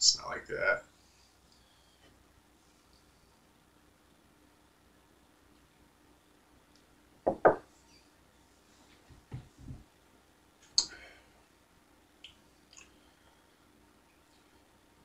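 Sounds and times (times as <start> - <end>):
faint lip clicks: 10.7 - 11.0, 12.2 - 13.0
sharp mouth click: 10.8 - 11.0.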